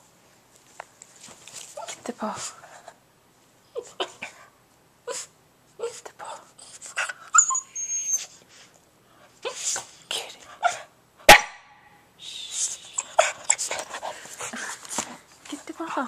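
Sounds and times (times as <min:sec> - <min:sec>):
dog barking and huffing: 0:13.0 - 0:14.9.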